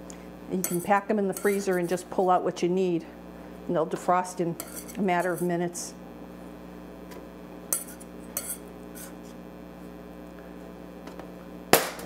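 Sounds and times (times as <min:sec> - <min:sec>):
steady low hum: 0:00.0 - 0:12.0
metal spatula clicking and scraping: 0:00.6 - 0:02.0, 0:04.6 - 0:05.5, 0:07.8 - 0:09.1.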